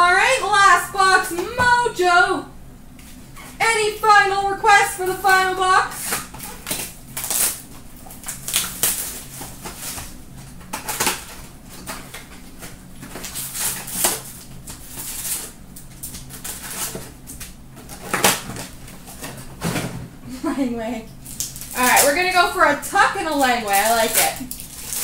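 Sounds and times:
faint steady hum: 0.0 - 25.0
card wrappers crinkling: 5.9 - 19.4, 21.2 - 25.0.

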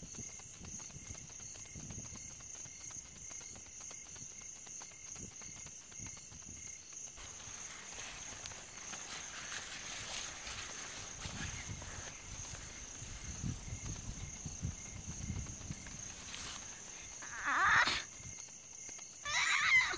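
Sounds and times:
insects trilling: 0.0 - 19.9
rustling hiss: 5.8 - 19.9.

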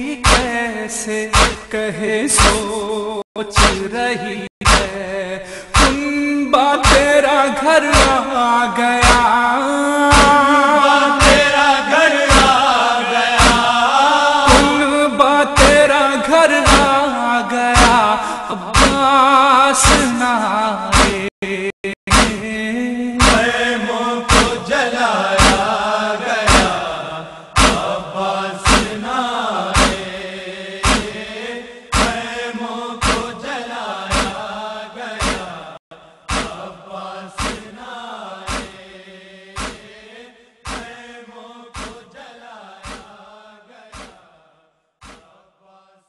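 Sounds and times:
male voices chanting: 0.0 - 44.4
sharp struck beat: 0.3 - 0.5, 1.4 - 1.7, 3.6 - 3.9, 4.6 - 5.0, 5.8 - 6.0, 6.8 - 7.1, 8.0 - 8.2, 9.0 - 9.3, 10.1 - 10.4, 11.2 - 11.6, 12.3 - 12.6, 13.4 - 13.8, 14.5 - 14.8, 15.6 - 15.9, 16.7 - 17.0, 17.8 - 18.0, 18.8 - 19.1, 22.1 - 22.4, 23.2 - 23.5, 24.3 - 24.7, 25.4 - 25.7, 26.5 - 26.8, 27.6 - 28.0, 28.7 - 29.0, 29.8 - 30.0, 30.8 - 31.2, 31.9 - 32.2, 33.0 - 33.3, 34.1 - 34.4, 36.3 - 36.6, 38.5 - 38.7, 39.6 - 39.8.

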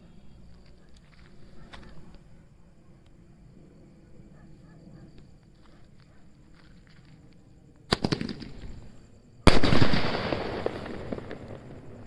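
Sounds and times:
firework cracks and bang: 7.9 - 8.8, 9.5 - 12.0
firework crackle: 7.9 - 8.9, 9.5 - 12.0.

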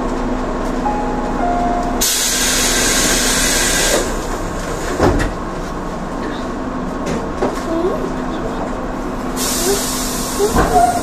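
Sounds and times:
electric train humming: 0.0 - 11.0
compressed air hiss: 9.4 - 10.5.

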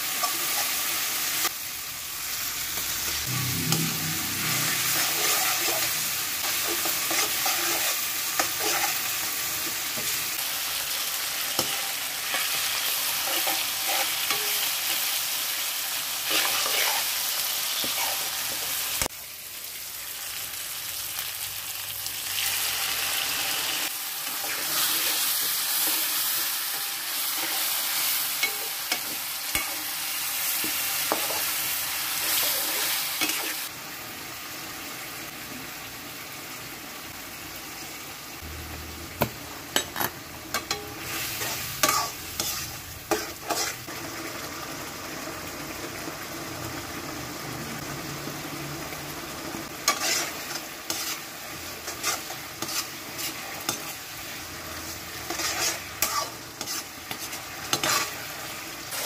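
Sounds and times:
sauce sizzling in oil: 0.0 - 59.0
spatula clicking and scraping pan: 5.0 - 10.2, 11.5 - 15.0, 24.4 - 30.0, 30.6 - 31.6, 39.8 - 43.9, 49.8 - 54.0, 55.2 - 59.0.

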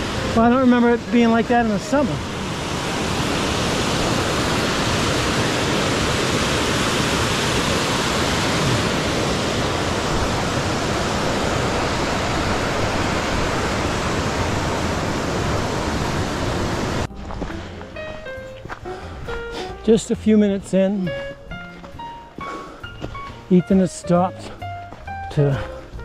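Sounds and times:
heavy running water: 0.0 - 20.1.

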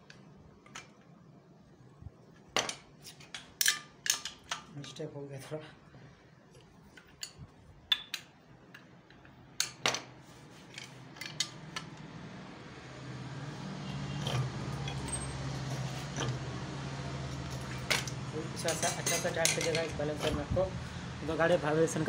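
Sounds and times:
metal parts clinking: 2.6 - 5.0, 6.9 - 12.0, 14.1 - 16.4, 17.3 - 20.5.

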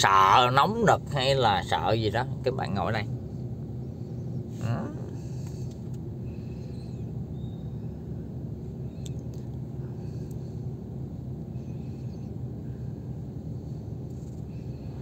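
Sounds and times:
low engine rumble inside car: 0.0 - 15.0
faint clicks: 9.0 - 9.6.

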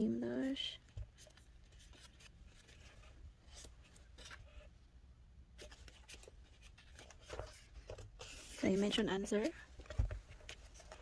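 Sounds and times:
paper rustling and tapping: 5.6 - 11.0.

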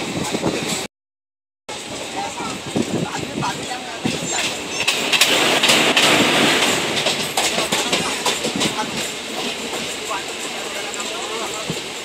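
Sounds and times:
train passing: 1.7 - 12.0
wheels clattering over rail joints: 2.3 - 12.0.

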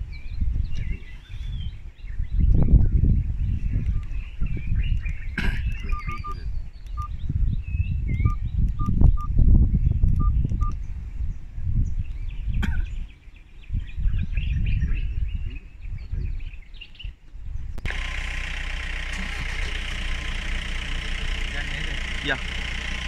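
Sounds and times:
small birds chirping: 0.0 - 23.0
low rumbling noise: 17.7 - 23.0
low engine hum: 17.8 - 23.0.

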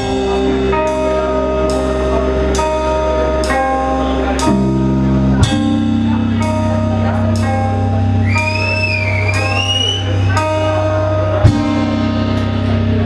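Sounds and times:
bass guitar: 0.0 - 13.0
distorted electric guitars: 0.0 - 13.0
drums: 0.0 - 13.0.

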